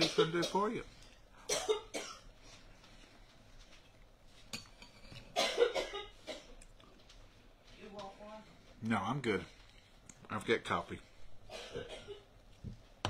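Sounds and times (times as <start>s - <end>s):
woman coughing: 0.0s - 0.7s, 1.4s - 2.3s, 5.3s - 6.6s, 11.5s - 12.3s.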